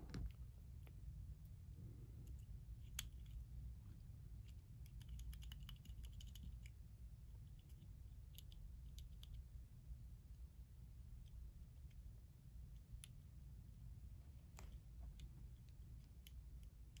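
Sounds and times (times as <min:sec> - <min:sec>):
low steady hum: 0:00.0 - 0:17.0
small metallic clicks: 0:04.4 - 0:06.8.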